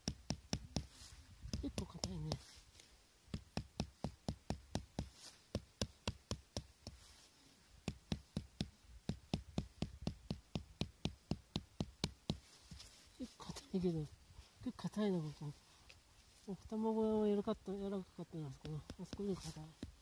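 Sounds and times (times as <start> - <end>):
tent peg hammered into ground: 0.0 - 2.4, 3.3 - 7.0, 7.8 - 12.9.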